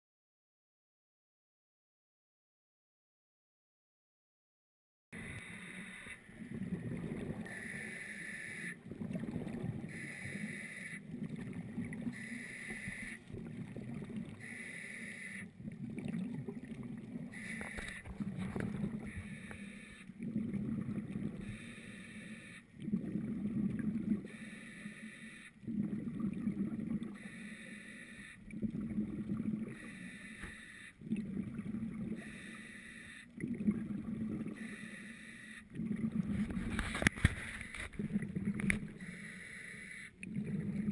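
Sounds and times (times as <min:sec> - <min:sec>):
regulator hissing on inhale: 0:05.2 - 0:06.3, 0:09.9 - 0:11.0, 0:14.4 - 0:15.5, 0:19.1 - 0:20.1, 0:21.4 - 0:22.7, 0:24.3 - 0:25.6, 0:27.2 - 0:28.4, 0:29.8 - 0:31.0, 0:32.2 - 0:33.3, 0:34.6 - 0:35.7, 0:39.0 - 0:40.2
rumble of exhaled bubbles: 0:06.2 - 0:08.0, 0:08.8 - 0:14.6, 0:15.5 - 0:21.8, 0:22.7 - 0:24.4, 0:25.6 - 0:27.4, 0:28.4 - 0:29.9, 0:31.0 - 0:32.5, 0:33.3 - 0:34.8, 0:35.7 - 0:39.1, 0:40.2 - 0:40.9.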